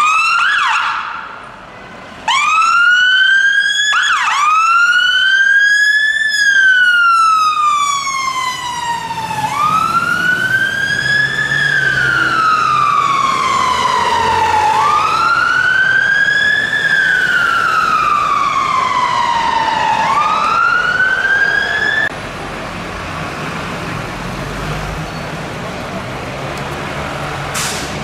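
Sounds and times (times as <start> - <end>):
fire engine siren wailing: 0.0 - 1.5, 2.1 - 22.2.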